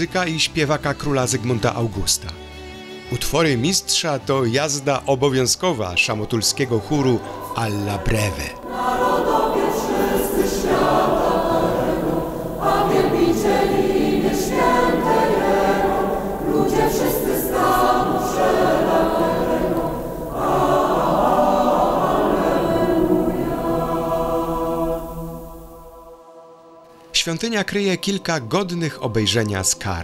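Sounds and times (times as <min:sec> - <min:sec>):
mixed choir singing a cappella: 0:06.2 - 0:26.9.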